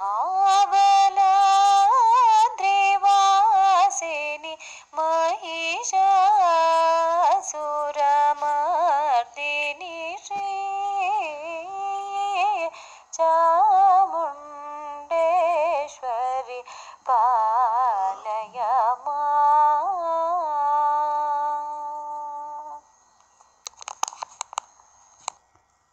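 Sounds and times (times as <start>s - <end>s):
woman singing devotional song: 0.0s - 23.2s
quick cluster of clicks: 23.2s - 25.4s.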